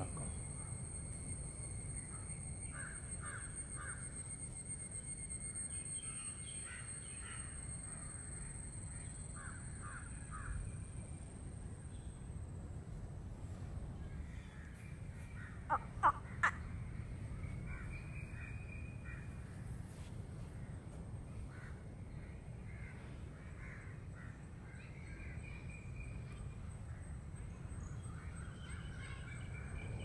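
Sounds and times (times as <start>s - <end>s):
thin steady high tone: 0.0s - 13.1s
crow cawing: 2.7s - 4.0s.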